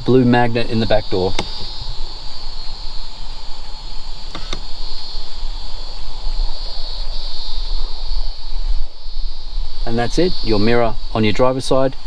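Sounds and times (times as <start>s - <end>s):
insects chirring: 0.0s - 12.0s
sharp click: 1.3s - 1.6s.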